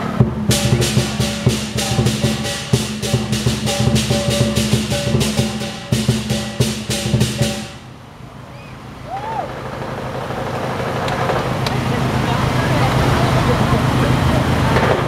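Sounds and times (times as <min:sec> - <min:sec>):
drum cymbals and gong beat: 0:00.0 - 0:08.0
crowd noise: 0:00.0 - 0:15.0.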